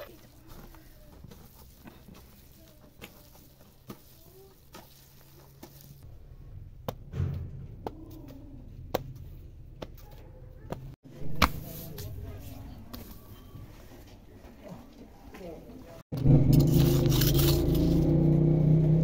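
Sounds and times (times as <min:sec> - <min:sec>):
dough squishing: 0:00.0 - 0:06.1, 0:07.8 - 0:13.4
low thump: 0:07.0 - 0:07.9.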